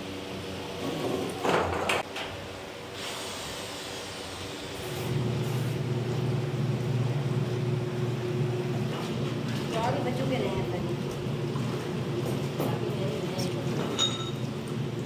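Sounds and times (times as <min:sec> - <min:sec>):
washing machine motor humming: 0:04.0 - 0:15.0.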